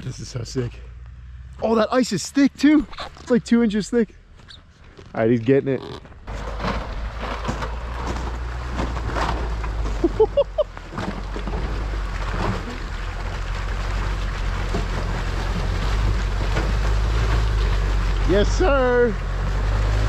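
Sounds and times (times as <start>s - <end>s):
truck engine droning: 6.0s - 20.0s
tyres churning through snow: 6.3s - 20.0s.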